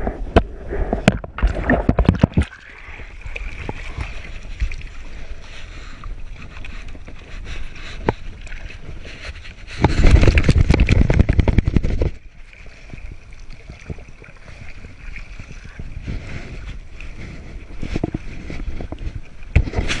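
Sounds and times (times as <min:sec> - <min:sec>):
rough rumbling noise: 0:00.0 - 0:12.4
water lapping against paddleboard: 0:00.0 - 0:20.0.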